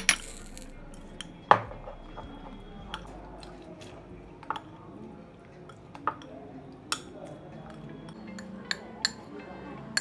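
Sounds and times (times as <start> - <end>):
spoon clinking against glass: 0.0 - 3.2, 5.7 - 9.4.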